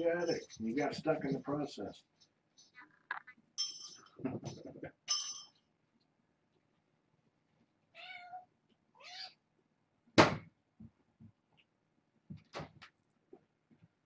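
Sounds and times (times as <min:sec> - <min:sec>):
kitten meowing: 0:08.0 - 0:09.4
sharp thump: 0:10.2 - 0:10.5.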